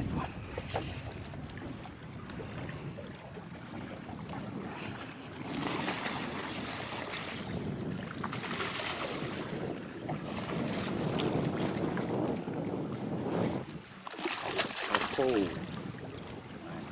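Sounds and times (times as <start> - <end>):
wind rumbling on microphone: 0.0 - 16.9
fish thrashing in splashing water: 5.4 - 12.1, 14.0 - 15.8.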